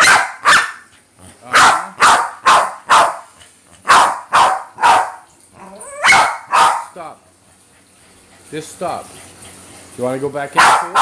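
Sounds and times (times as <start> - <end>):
dog barking: 0.0 - 0.8, 1.5 - 5.3, 6.0 - 7.0, 10.6 - 11.0.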